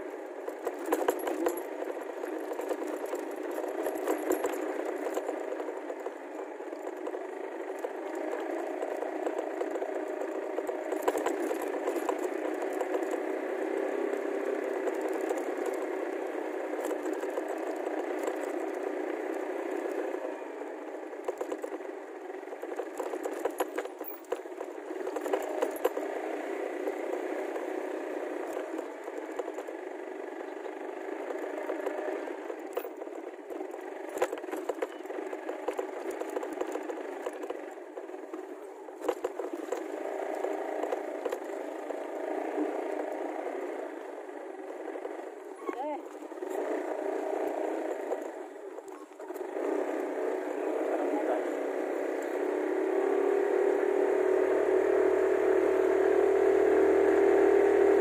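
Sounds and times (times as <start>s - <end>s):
small engine running: 0.0s - 58.0s
frame rattling and clattering: 0.5s - 6.0s, 22.6s - 27.3s.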